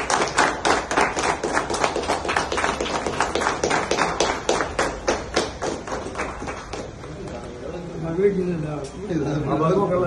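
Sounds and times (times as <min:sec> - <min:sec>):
people clapping in time: 0:00.0 - 0:07.4.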